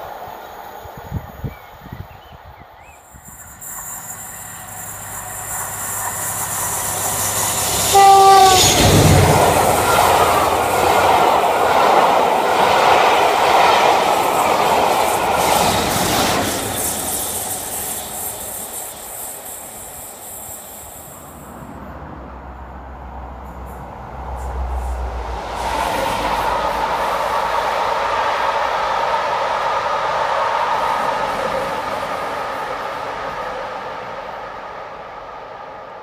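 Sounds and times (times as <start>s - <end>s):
passenger train passing: 0.0s - 36.0s
train horn: 7.6s - 10.6s.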